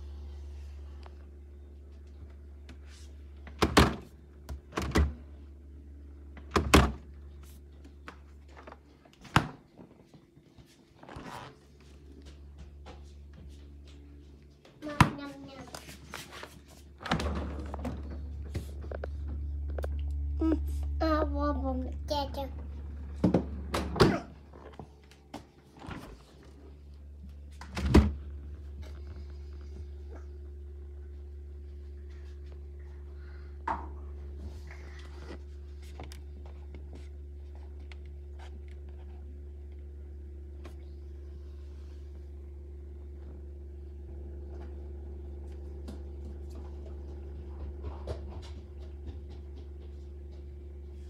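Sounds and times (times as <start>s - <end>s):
low steady hum: 0.0s - 51.0s.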